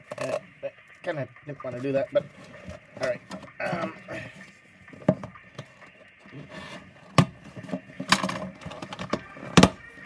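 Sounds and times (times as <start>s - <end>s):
cardboard rubbing and scraping: 6.3s - 9.8s.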